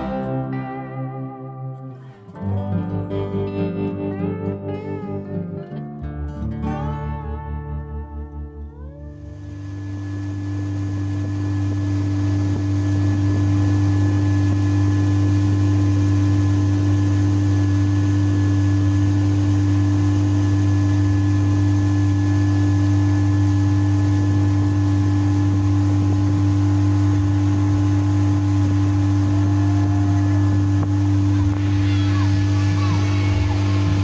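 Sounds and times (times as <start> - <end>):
boat engine droning: 8.8 - 34.0.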